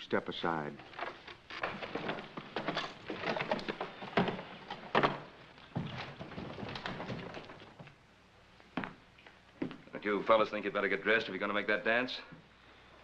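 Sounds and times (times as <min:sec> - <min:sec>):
irregular knocks and wooden thuds: 0:00.8 - 0:08.0, 0:08.8 - 0:09.0.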